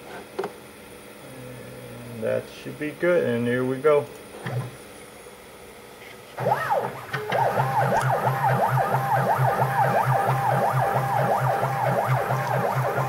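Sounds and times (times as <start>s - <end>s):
low pulsing hum: 6.4s - 13.0s
stepper motor whine: 6.4s - 13.0s
steady tone: 7.5s - 13.0s.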